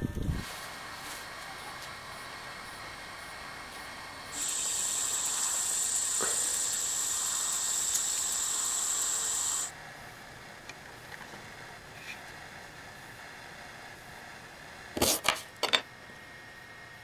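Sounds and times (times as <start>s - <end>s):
high-pitched insect chorus: 1.4s - 9.7s.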